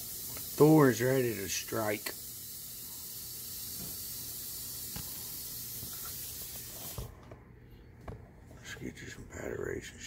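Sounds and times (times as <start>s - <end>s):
snake hissing: 0.0s - 7.0s.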